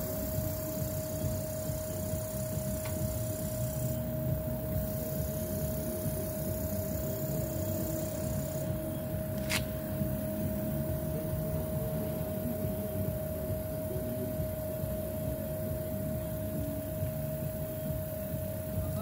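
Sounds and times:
air compressor humming: 0.0 - 19.0
compressor whine: 0.0 - 19.0
sharp click: 9.4 - 9.7.

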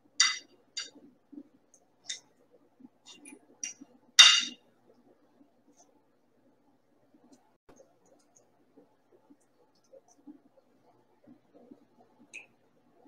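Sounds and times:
cutlery clinking on plate: 0.2 - 0.9, 3.6 - 4.6.

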